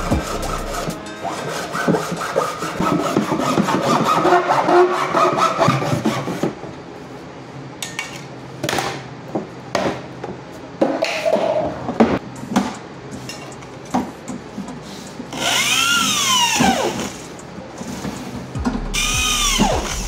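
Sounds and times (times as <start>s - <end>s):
hand scraping and rubbing a surface: 0.0s - 3.9s.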